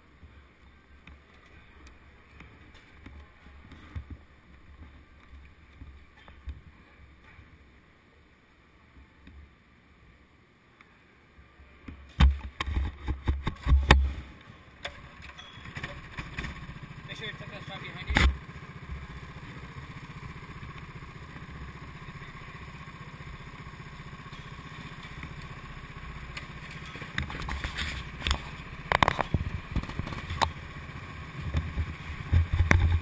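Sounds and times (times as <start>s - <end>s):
go-kart engine starting and idling: 13.6s - 33.0s.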